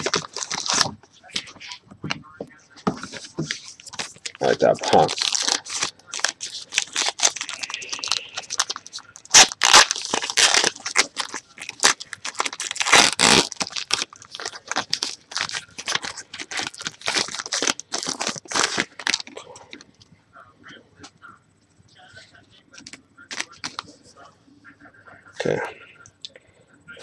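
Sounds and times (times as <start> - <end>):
card pack wrapper tearing: 0.0 - 0.9, 3.9 - 19.4.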